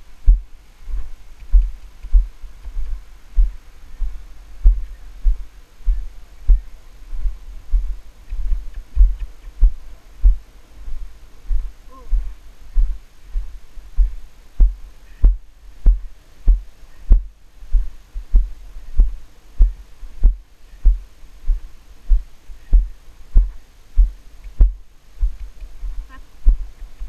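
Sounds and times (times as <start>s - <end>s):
horse hooves thudding on sand: 0.3s - 27.0s.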